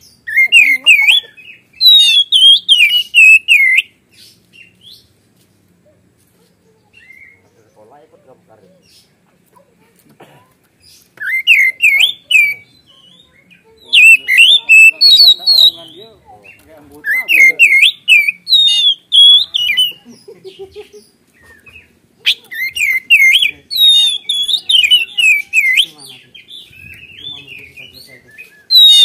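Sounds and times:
bird singing whistled phrases: 0.1 - 4.0, 11.2 - 20.0, 21.4 - 29.0.

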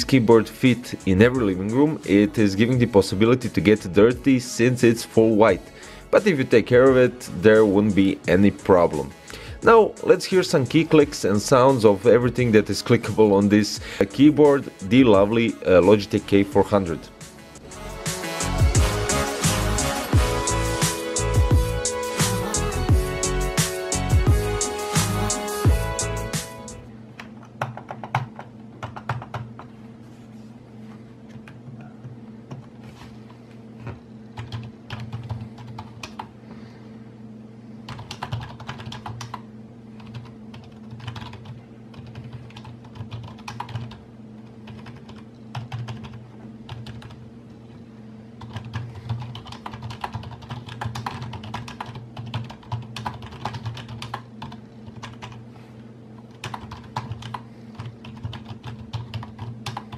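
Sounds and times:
keyboard typing clicks: 27.2 - 29.7, 56.3 - 59.9.

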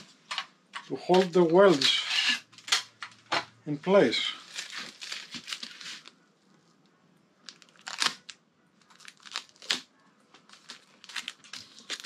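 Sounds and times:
tape crinkling rips: 4.4 - 6.2, 7.4 - 9.9, 10.5 - 12.0.

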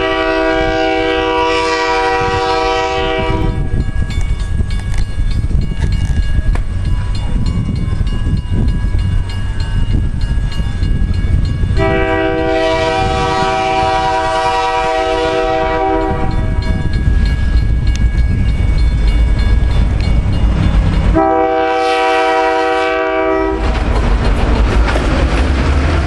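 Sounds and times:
locomotive air horn blast: 0.0 - 3.7, 11.8 - 16.7, 21.1 - 23.7
train rumbling: 0.0 - 26.0.

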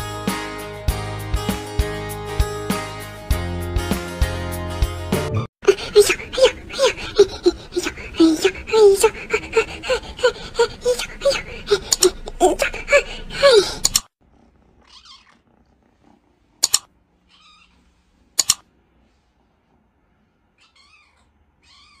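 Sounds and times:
kitten mewing: 5.6 - 14.1
sharp clicks: 13.8 - 14.1, 16.6 - 16.9, 18.4 - 18.6
cat whining calls: 20.6 - 22.0.

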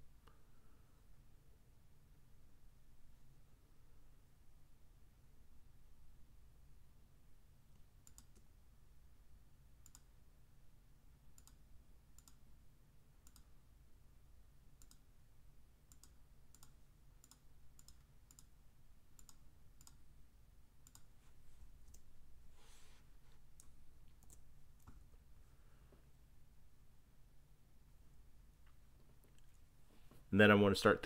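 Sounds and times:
faint low hum: 0.0 - 31.0
computer mouse clicking: 7.7 - 8.5, 9.8 - 10.1, 11.4 - 11.6, 12.2 - 12.4, 13.2 - 13.5, 14.8 - 15.1, 15.9 - 18.6, 19.2 - 20.0, 20.8 - 21.2, 21.8 - 22.1, 23.5 - 25.0.

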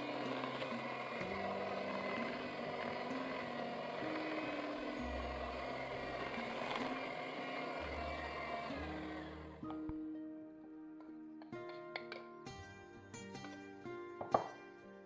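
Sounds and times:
electric hand mixer running: 0.0 - 9.8
background music: 0.0 - 15.0.

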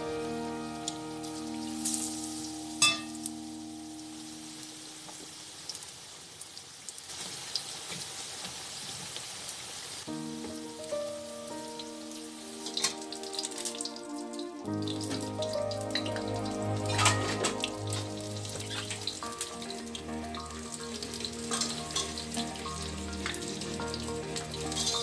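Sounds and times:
background music: 0.0 - 4.8, 10.1 - 25.0
oil sizzling and crackling: 0.0 - 25.0.

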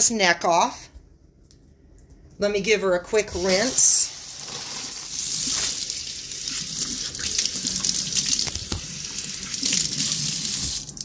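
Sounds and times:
kitchen tap running: 3.3 - 11.0.

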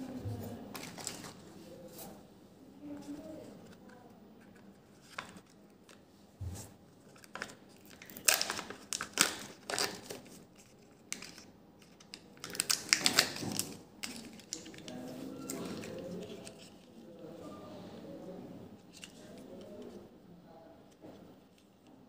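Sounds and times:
foil seal crinkling and tearing: 7.2 - 16.6.

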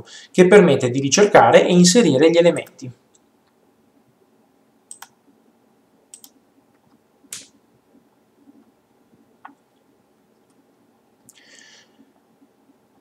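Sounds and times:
computer mouse clicks: 4.9 - 5.2, 6.1 - 7.5.

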